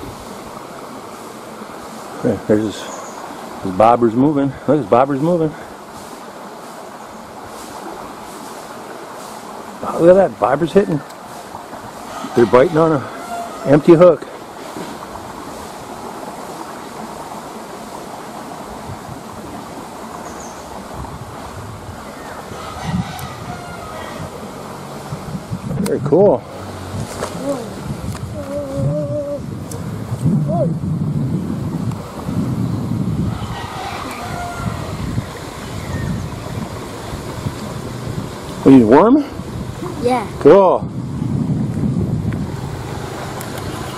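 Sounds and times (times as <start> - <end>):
water rushing in stream: 0.0 - 43.9
wind buffeting microphone: 9.8 - 43.9.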